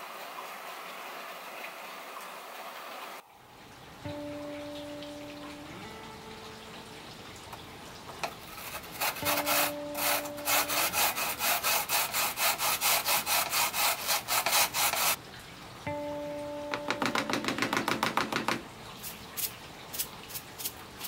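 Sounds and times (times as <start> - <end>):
potato grating wet rasping: 8.4 - 15.2, 19.0 - 21.0.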